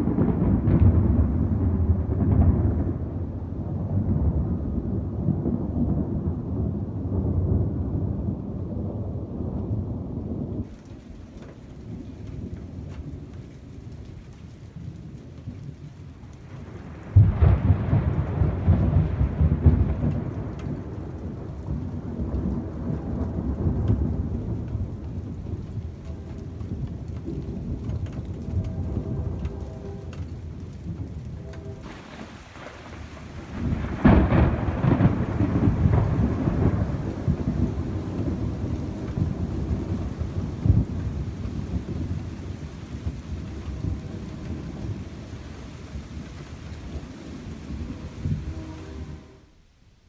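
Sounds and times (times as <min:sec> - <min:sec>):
loud crack of thunder: 0:00.0 - 0:10.8, 0:16.6 - 0:26.0, 0:26.6 - 0:49.2
thunder rumbling: 0:00.0 - 0:49.5
rain falling: 0:00.0 - 0:50.0
raindrop ticks: 0:10.6 - 0:48.8.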